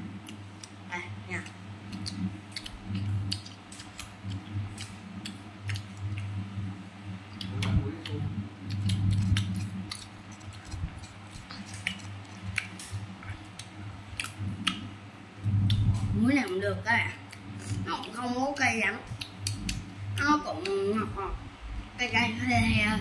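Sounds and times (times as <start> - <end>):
crunchy fruit being chewed: 1.4 - 6.4, 7.3 - 14.8.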